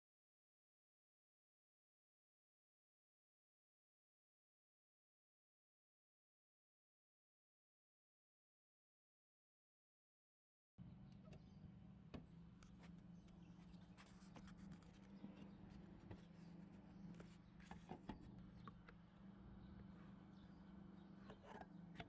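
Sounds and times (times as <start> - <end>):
faint low hum: 10.8 - 22.0.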